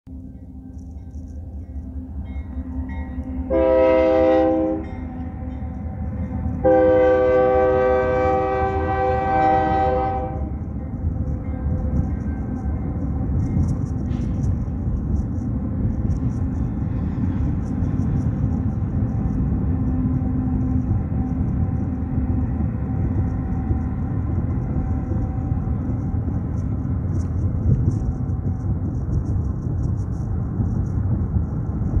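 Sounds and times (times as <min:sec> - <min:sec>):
train cars rumbling past: 0:00.1 - 0:32.0
locomotive air horn blasts: 0:03.4 - 0:05.5, 0:06.6 - 0:10.6.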